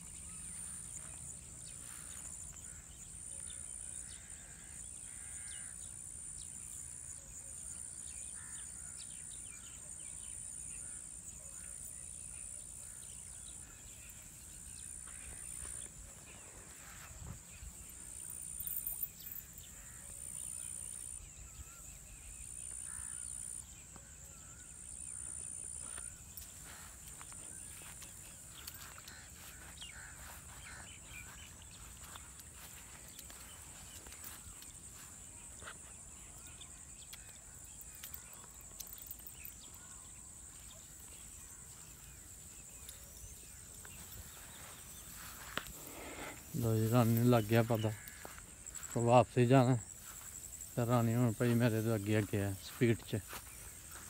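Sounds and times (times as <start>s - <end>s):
footsteps through grass: 0.0s - 2.8s, 13.6s - 21.1s, 24.8s - 38.3s, 40.5s - 54.0s
high-pitched insect drone: 12.8s - 54.0s.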